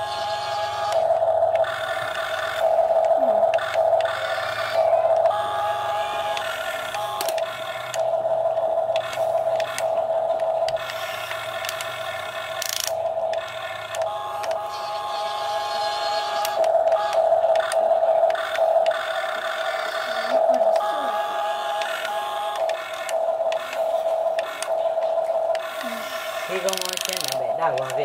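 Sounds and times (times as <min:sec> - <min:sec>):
small electric motors whining: 0:00.0 - 0:28.0
sharp clicks: 0:06.3 - 0:08.1, 0:08.9 - 0:14.6, 0:16.4 - 0:19.4, 0:21.8 - 0:26.0, 0:26.6 - 0:28.0.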